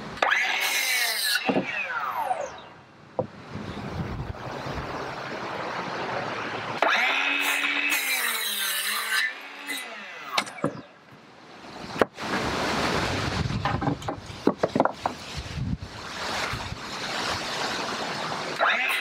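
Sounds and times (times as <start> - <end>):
miter saw whining through wood: 0.2 - 2.6, 6.8 - 11.0, 18.6 - 19.0
wood rubbing and knocking: 13.5 - 15.3.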